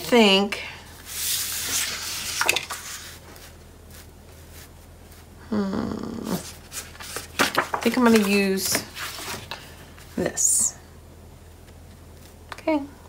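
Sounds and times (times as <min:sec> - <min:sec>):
paper sliding and rustling: 0:01.0 - 0:04.7, 0:06.4 - 0:09.6.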